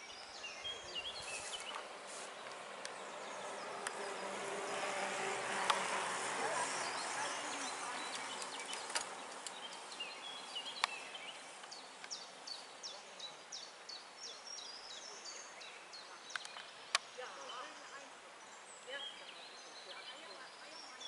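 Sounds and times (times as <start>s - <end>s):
songbirds singing: 0.0s - 21.0s
steady outdoor hiss: 0.0s - 21.0s
sharp clicks: 8.2s - 9.8s.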